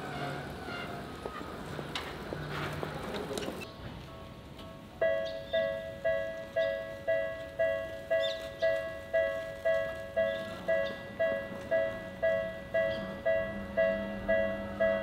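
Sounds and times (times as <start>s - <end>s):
level crossing warning bell: 5.0s - 15.0s.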